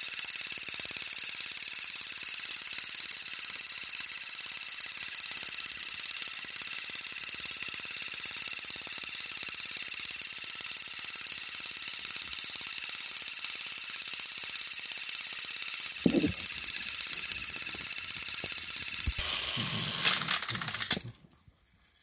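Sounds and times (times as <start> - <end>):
toy train motors whirring: 0.0 - 21.2.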